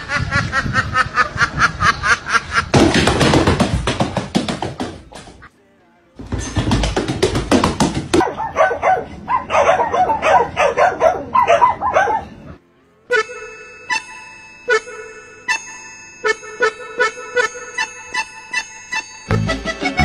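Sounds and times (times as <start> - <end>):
music: 4.9 - 8.2, 12.6 - 20.0
dogs barking: 8.2 - 12.6.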